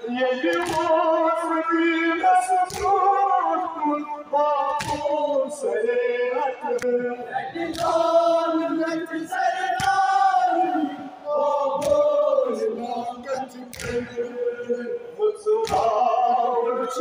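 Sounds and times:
sharp slaps: 0:00.5 - 0:00.9, 0:02.6 - 0:03.1, 0:04.7 - 0:05.2, 0:07.7 - 0:08.1, 0:09.8 - 0:10.2, 0:11.8 - 0:12.1, 0:13.7 - 0:14.1, 0:15.6 - 0:16.0.

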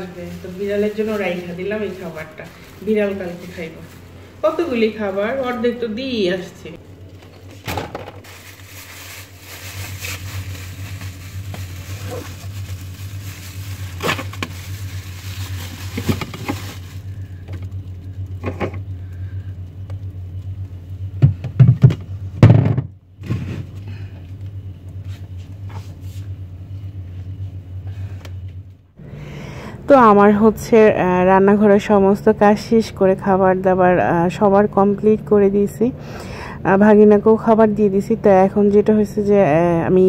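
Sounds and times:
plastic bag rustling: 0:00.0 - 0:05.8, 0:07.4 - 0:18.1
refrigerator humming: 0:00.0 - 0:40.0
containers knocking on shelves: 0:21.2 - 0:22.9
loud thumps: 0:21.2 - 0:23.0.

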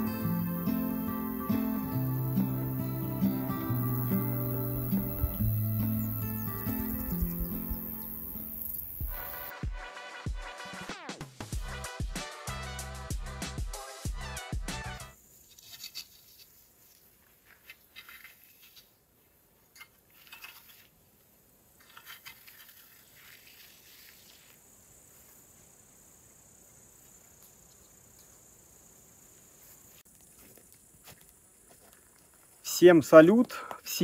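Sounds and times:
insects trilling: 0:00.0 - 0:09.5, 0:21.8 - 0:34.0
short insect chirps: 0:00.0 - 0:09.5, 0:21.8 - 0:32.6.

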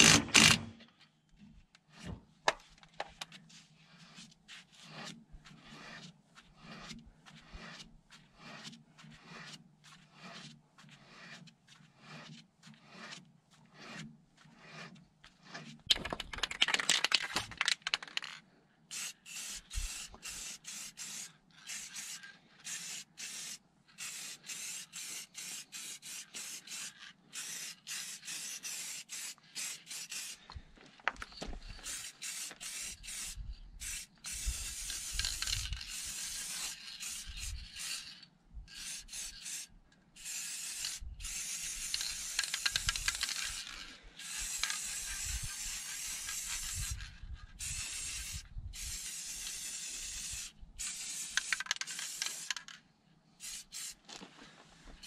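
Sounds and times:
spray paint can hissing: 0:00.0 - 0:00.6, 0:07.5 - 0:07.8, 0:18.9 - 0:30.5, 0:31.4 - 0:52.8, 0:53.4 - 0:54.0.

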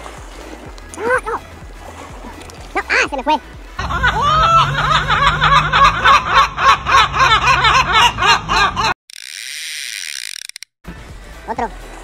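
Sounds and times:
gulls laughing calls: 0:03.8 - 0:09.0.

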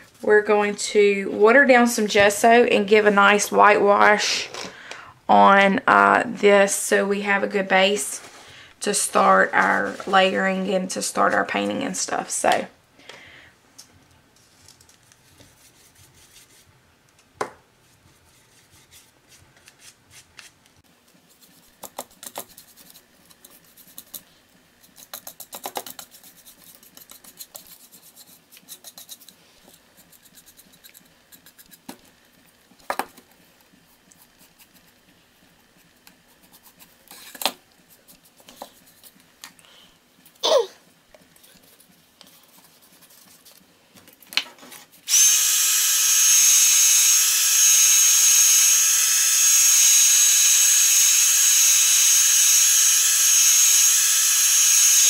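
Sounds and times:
paintbrush strokes on cardboard: 0:37.8 - 0:39.2
electric blower whining: 0:45.1 - 0:55.0.

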